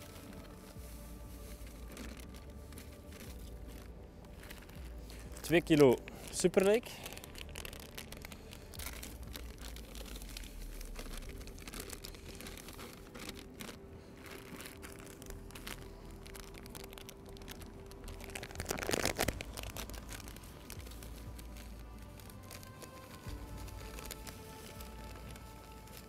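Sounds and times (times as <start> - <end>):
plastic bag crinkling: 0.0 - 26.0.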